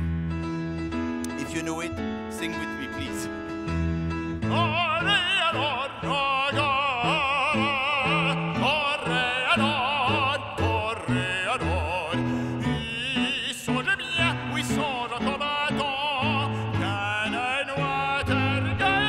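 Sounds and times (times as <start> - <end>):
instrumental accompaniment: 0.0 - 19.0
man singing operatically: 4.4 - 19.0.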